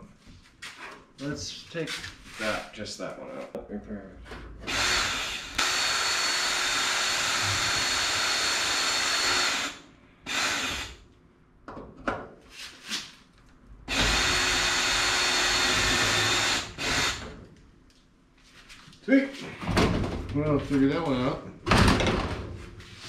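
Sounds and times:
drill drilling into metal: 0:04.7 - 0:11.0, 0:13.9 - 0:17.3.

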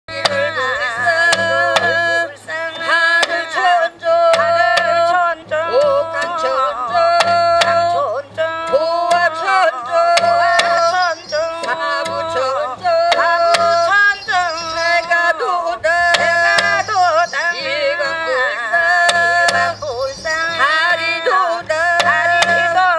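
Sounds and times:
barrel drum strikes: 0:00.1 - 0:02.2, 0:04.3 - 0:08.1, 0:10.0 - 0:14.9, 0:16.1 - 0:17.7, 0:18.9 - 0:21.0, 0:21.9 - 0:22.9
ornamented wavering melody: 0:10.1 - 0:21.3.

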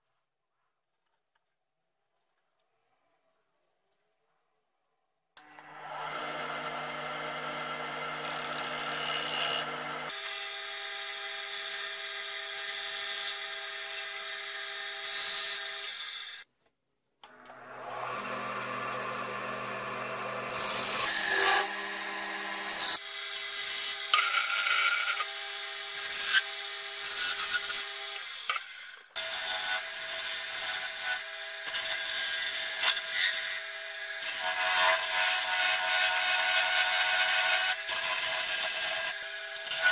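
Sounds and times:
chisel scraping spinning wood: 0:07.7 - 0:10.1
lathe motor hum: 0:17.4 - 0:23.0.

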